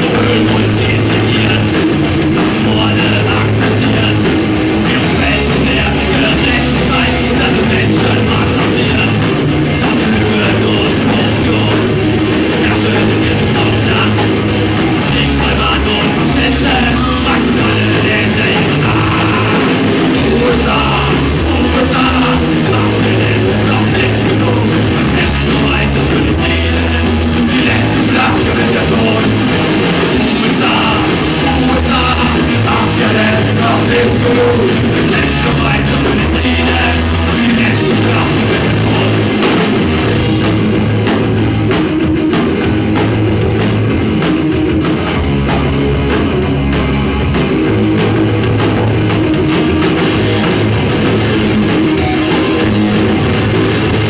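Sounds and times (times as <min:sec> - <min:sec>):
person singing: 0:00.0 - 0:40.4
drum kit: 0:00.0 - 0:54.0
electric guitars: 0:00.0 - 0:54.0.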